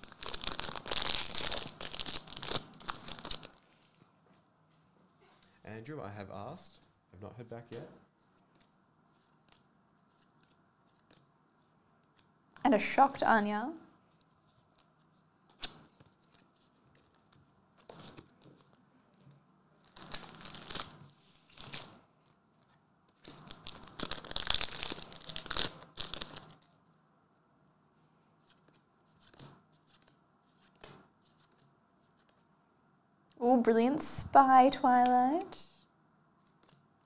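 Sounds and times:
paper crinkling and tearing: 0.0 - 3.7, 19.8 - 26.8
cards and paper rustling: 0.1 - 4.1, 7.5 - 12.3, 14.1 - 26.9, 28.3 - 32.5, 36.4 - 36.9.

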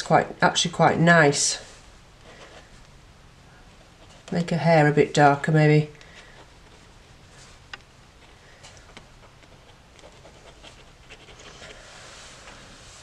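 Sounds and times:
pen nib scratching on paper: 8.2 - 11.8.

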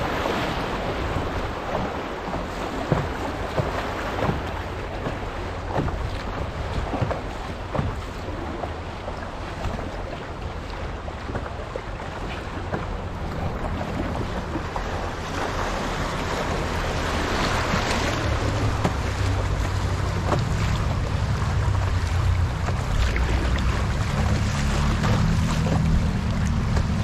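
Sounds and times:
river water rushing and splashing: 0.0 - 27.0.

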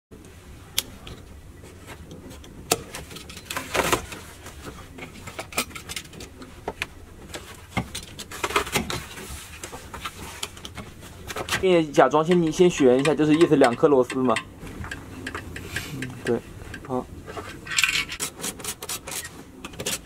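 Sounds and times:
scraping rustle: 1.6 - 13.0, 15.7 - 20.0.

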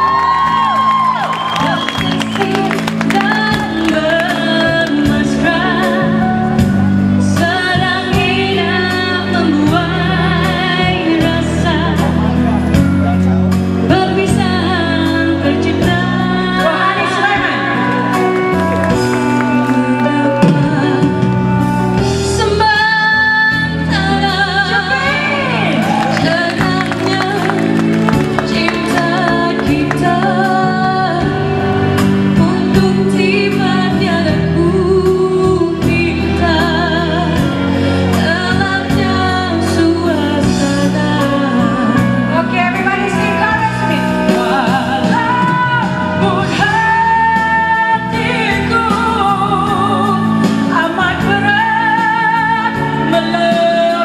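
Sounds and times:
pop backing track: 0.0 - 54.0
women singing: 1.6 - 6.3, 22.4 - 54.0.

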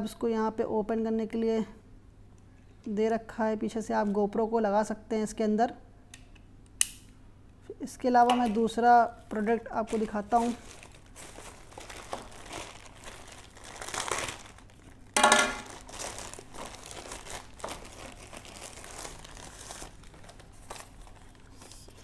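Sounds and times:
plastic mailer bag crinkling: 9.3 - 21.7
paper wrapping rustling: 9.3 - 22.0
plastic ripping: 9.9 - 21.7.

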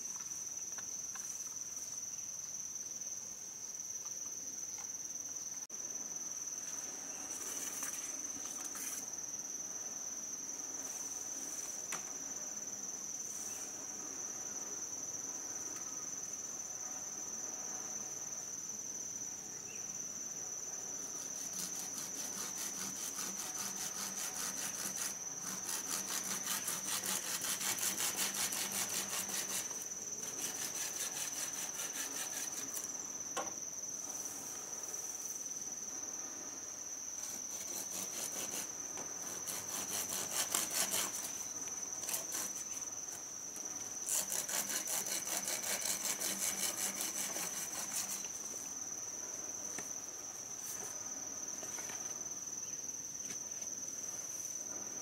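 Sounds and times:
insects droning: 0.0 - 55.0
hand saw cutting wood: 21.2 - 32.9, 37.3 - 41.4, 42.0 - 42.7, 44.0 - 48.3.

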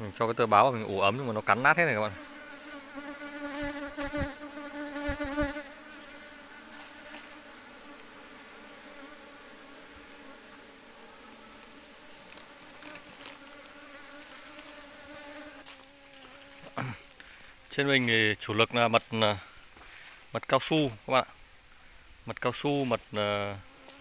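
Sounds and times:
bees buzzing: 0.0 - 17.7.

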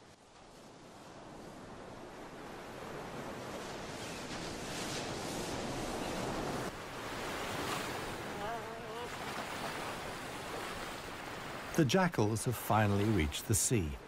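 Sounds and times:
ocean surf washing onto beach: 0.0 - 14.0.

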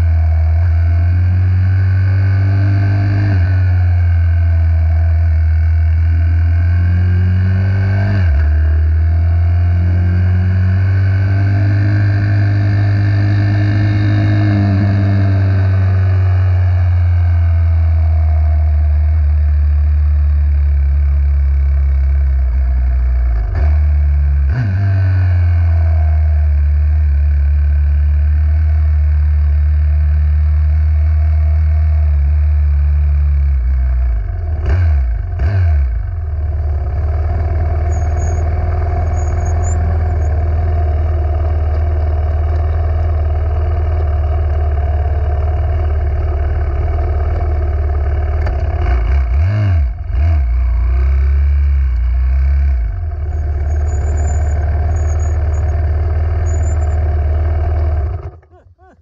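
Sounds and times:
minibike engine running: 36.6 - 49.3, 50.2 - 59.0.

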